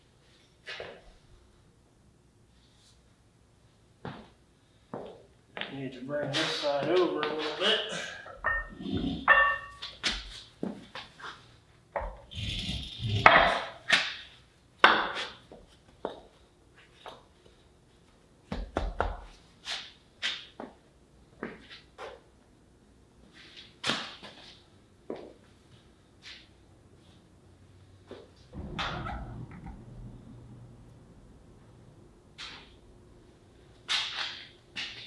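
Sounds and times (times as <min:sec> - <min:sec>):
steel leaf springs knocking on concrete: 0:08.4 - 0:09.9.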